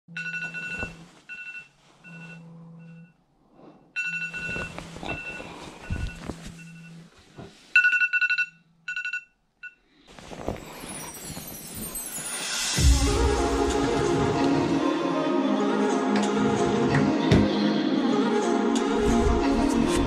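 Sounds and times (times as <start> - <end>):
rustling handling noise: 0.2 - 2.4, 4.2 - 7.9, 10.1 - 12.7
electronic alarm beeping: 0.2 - 3.2.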